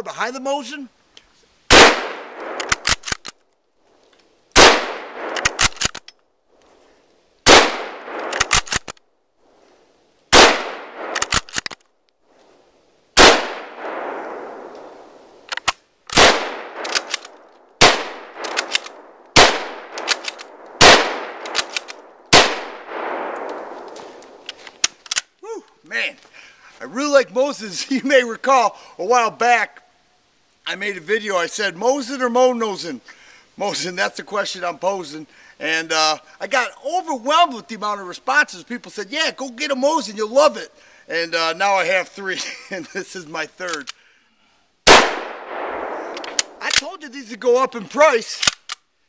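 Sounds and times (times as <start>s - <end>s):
rifle shots with echo: 1.7s - 3.1s, 4.6s - 5.9s, 7.4s - 8.8s, 10.3s - 11.5s, 13.2s - 15.2s, 16.1s - 24.4s, 44.9s - 46.8s.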